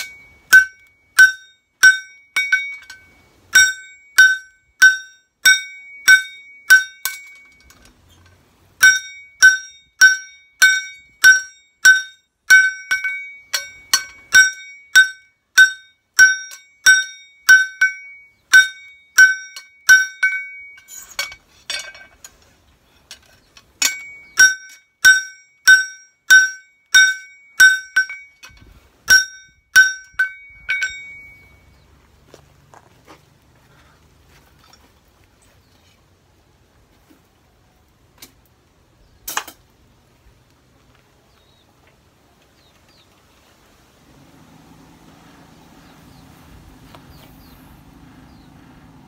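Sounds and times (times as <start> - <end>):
hammer striking metal on anvil: 0.0 - 7.6, 8.8 - 22.1, 23.8 - 31.6.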